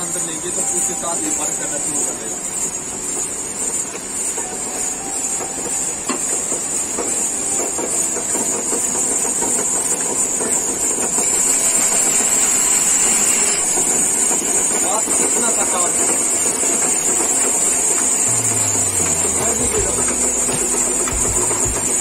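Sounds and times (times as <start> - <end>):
band saw mill clattering: 14.3 - 22.0.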